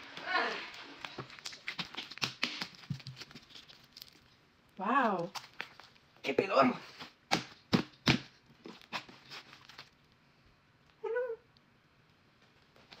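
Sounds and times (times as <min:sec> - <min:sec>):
slime popping and squelching: 0:00.1 - 0:04.3.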